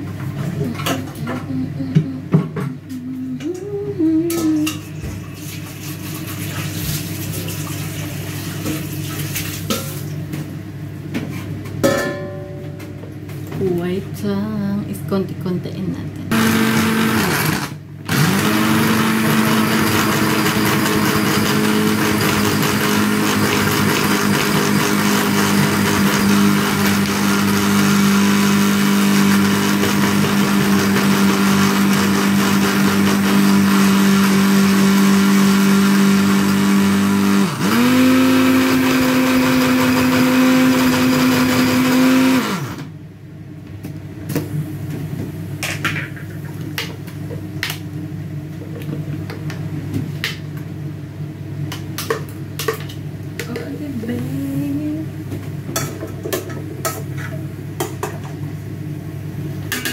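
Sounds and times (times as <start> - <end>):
kitchen chopper motor humming: 16.3 - 43.0.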